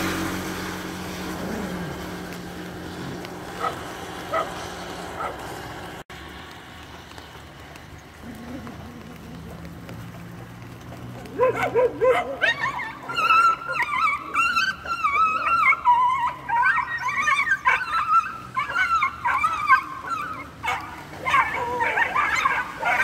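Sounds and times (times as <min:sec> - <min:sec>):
dog yelping and squealing: 0:11.4 - 0:23.0.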